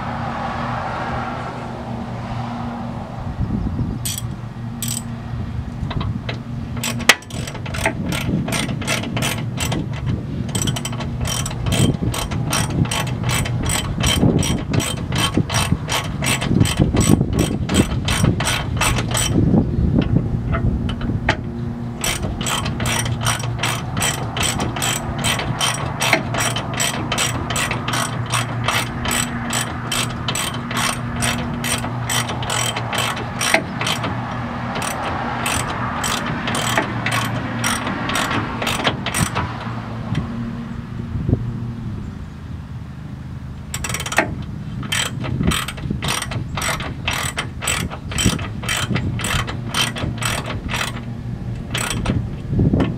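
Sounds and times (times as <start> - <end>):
ratchet wrench clicking: 4.0 - 5.1, 5.9 - 19.5, 22.0 - 39.7, 43.7 - 52.9.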